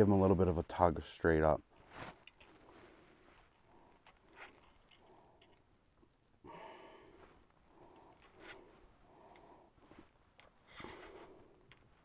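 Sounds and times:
faint breathing: 2.6s - 5.7s, 6.4s - 12.0s.

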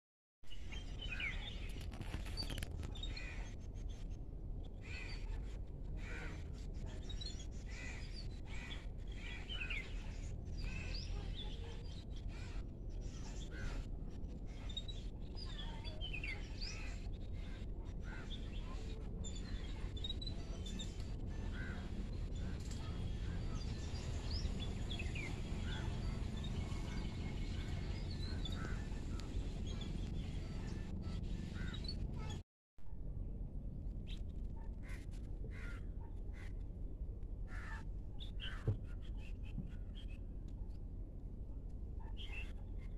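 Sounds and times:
steady low rumble: 0.6s - 42.9s
birds calling and chirping: 4.7s - 32.4s, 37.5s - 40.2s.

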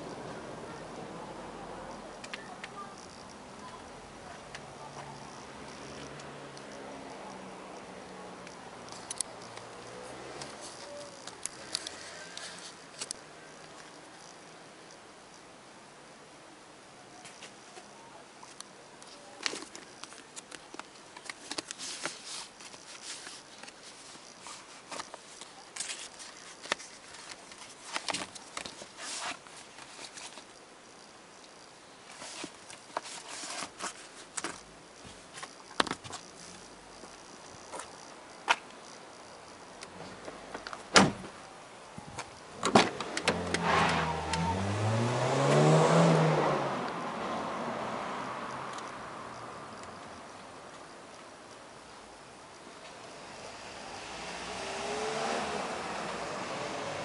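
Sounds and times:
paper pages flipping: 19.0s - 30.4s, 32.1s - 36.2s
vehicle engine accelerating: 43.0s - 49.7s, 53.1s - 57.0s.

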